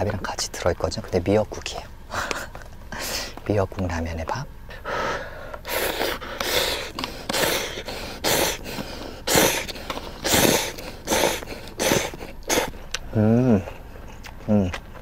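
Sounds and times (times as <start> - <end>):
person slurping noodles: 5.7 - 8.6, 9.2 - 12.8.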